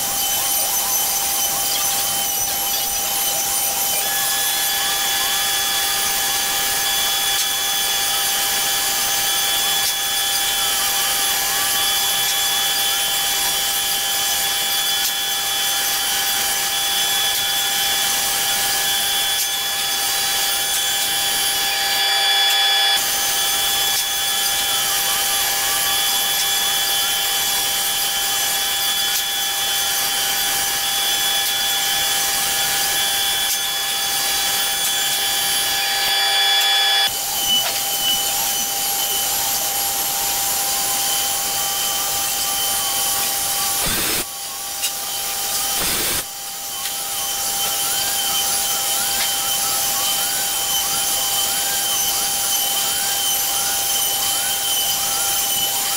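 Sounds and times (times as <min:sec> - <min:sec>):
router spindle whining: 0:00.0 - 0:55.9.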